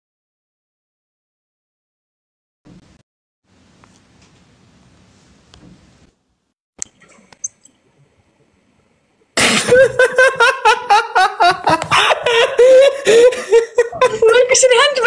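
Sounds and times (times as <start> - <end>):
loud high-pitched laughter: 9.4 - 14.8.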